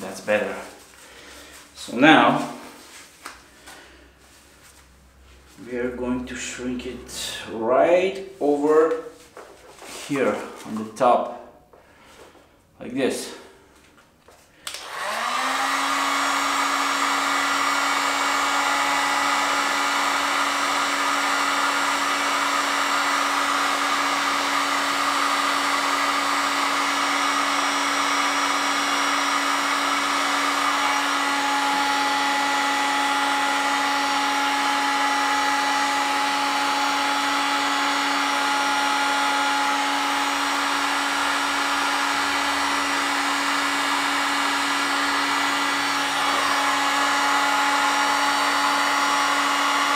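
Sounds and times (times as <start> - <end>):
heat gun fan humming: 14.5 - 49.9.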